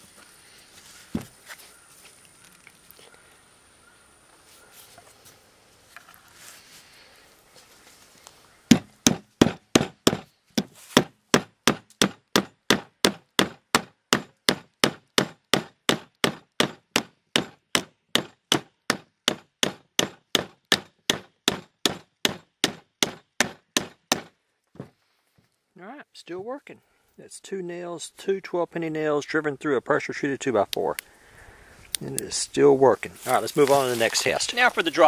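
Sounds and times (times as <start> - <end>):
metal hammering nails: 8.7 - 24.3.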